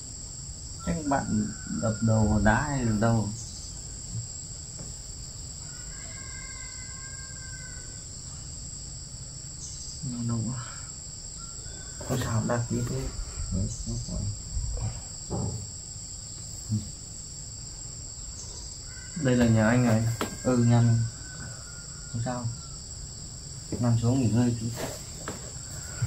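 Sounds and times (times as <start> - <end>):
high-pitched insect chorus: 0.0 - 26.0
indistinct low voice: 0.9 - 3.3, 12.1 - 15.6, 16.7 - 17.0.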